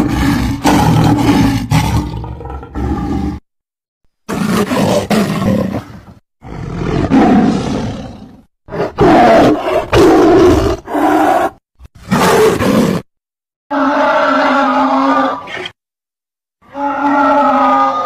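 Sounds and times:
big cat roars and snarls: 0.0 - 3.4, 4.3 - 13.1, 16.6 - 18.0
long pitched animal call: 13.7 - 15.5, 16.6 - 18.0.

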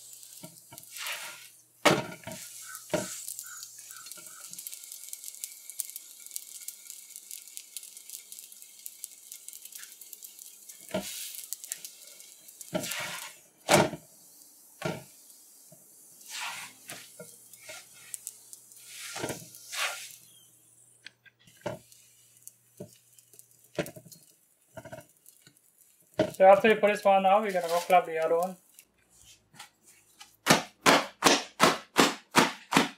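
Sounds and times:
flatbread sizzling on a griddle: 0.0 - 32.9
spatula knocking and scraping: 0.3 - 5.2, 12.7 - 14.0, 22.8 - 25.5.

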